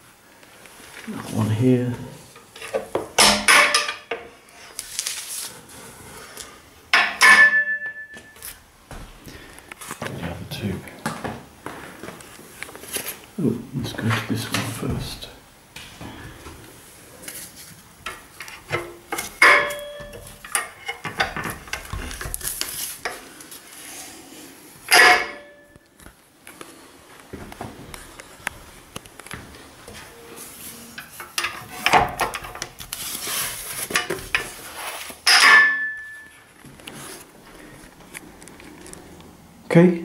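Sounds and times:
ringing metallic clanks: 7.0s - 8.4s, 19.4s - 20.7s, 24.9s - 25.7s, 35.3s - 36.3s.

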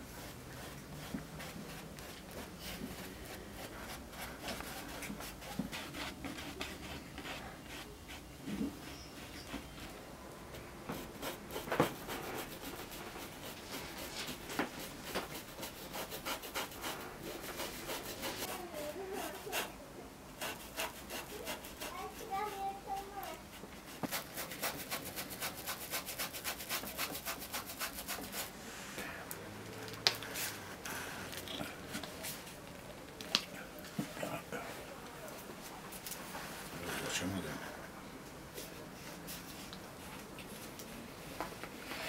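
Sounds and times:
paintbrush rubbing on canvas: 0.1s - 10.0s, 10.9s - 19.8s, 20.4s - 28.8s.

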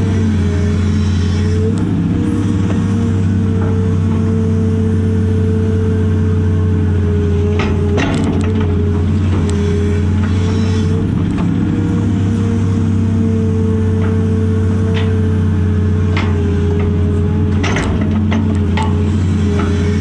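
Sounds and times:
excavator engine droning: 0.0s - 20.0s
knocks and rattles: 16.2s - 19.8s.

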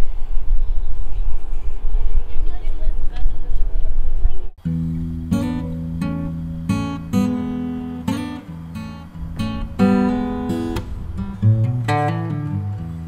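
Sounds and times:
acoustic guitar strumming chords: 4.6s - 13.0s.

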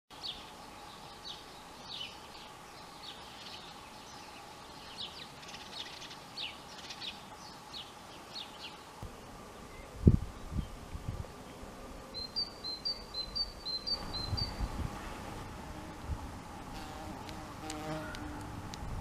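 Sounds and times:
songbird chirping: 0.1s - 15.3s.

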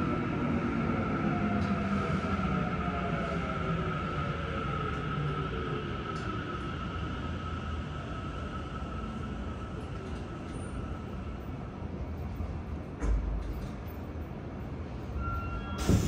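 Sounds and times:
train wheel rumble: 15.8s - 16.0s.

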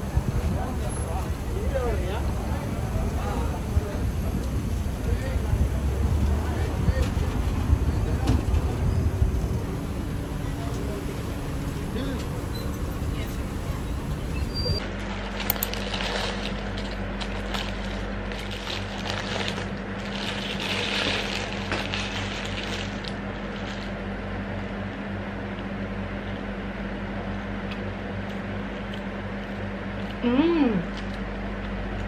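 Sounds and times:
steady low hum: 0.0s - 32.0s
paper wrapper crinkling: 14.9s - 24.0s.

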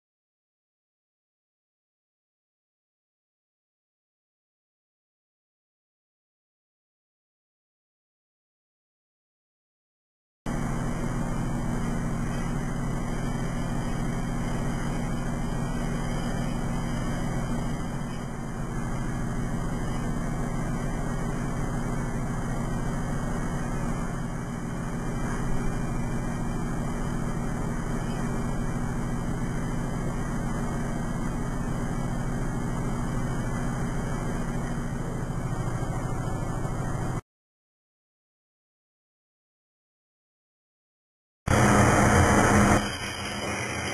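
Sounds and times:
machine hum and fan noise: 10.5s - 37.2s, 41.5s - 43.9s.

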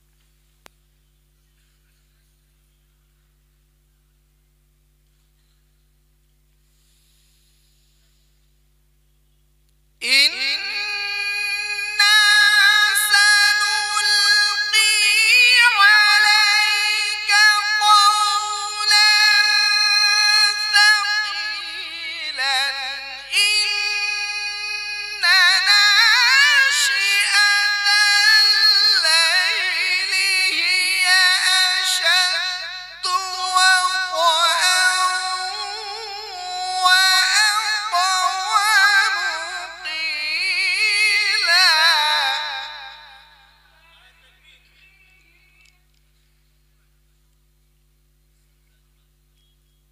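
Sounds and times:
man chanting through a microphone: 10.0s - 45.8s.

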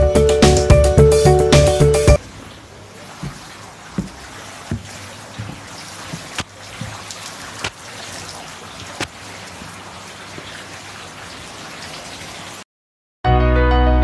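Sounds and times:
soft footstep thumps: 3.1s - 7.8s, 8.9s - 9.8s.

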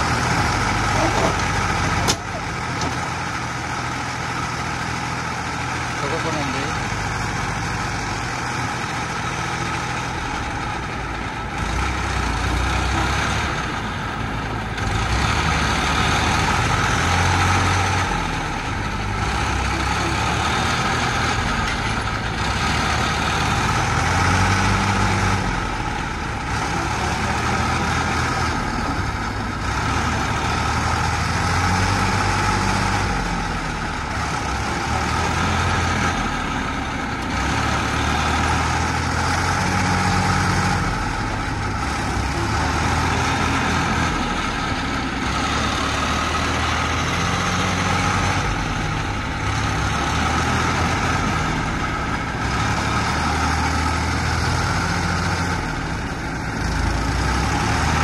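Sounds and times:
diesel engines revving: 0.0s - 58.0s.

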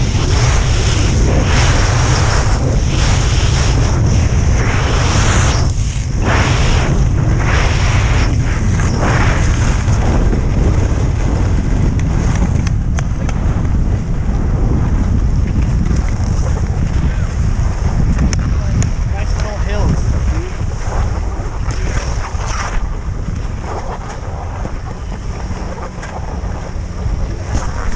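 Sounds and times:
wind buffeting microphone: 0.0s - 27.9s
skis swishing on snow: 0.2s - 10.9s, 19.1s - 27.9s.

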